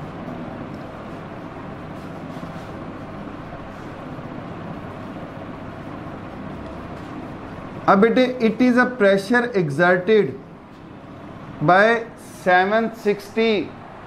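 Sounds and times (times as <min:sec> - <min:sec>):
marker writing on a whiteboard: 0:00.7 - 0:04.3.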